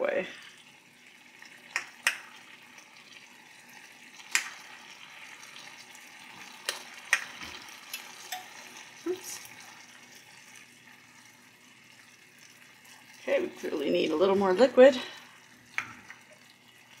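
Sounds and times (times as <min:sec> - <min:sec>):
food sizzling in a wok: 0:00.0 - 0:17.0
metal scoop clinking on pan: 0:07.9 - 0:08.6.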